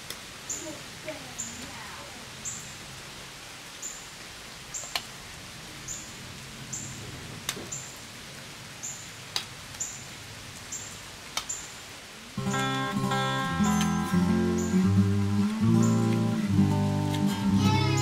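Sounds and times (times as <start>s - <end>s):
acoustic guitar music: 12.4s - 18.0s.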